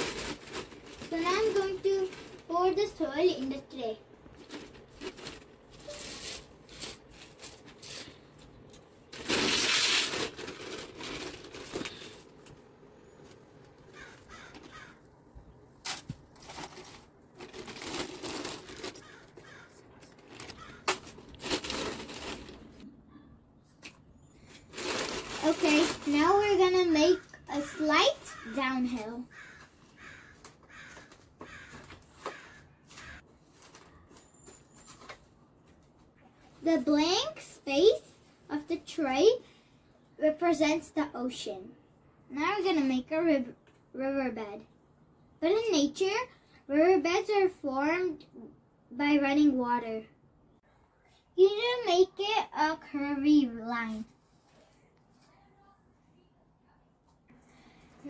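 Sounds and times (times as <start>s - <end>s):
plastic bag rustling: 0.0s - 13.4s, 15.8s - 22.9s, 24.4s - 28.4s, 31.5s - 35.5s.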